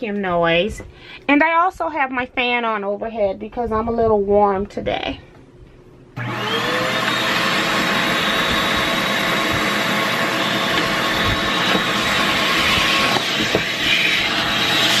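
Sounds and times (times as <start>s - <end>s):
vacuum cleaner motor running: 6.2s - 15.0s
air rushing through nozzle: 9.6s - 15.0s.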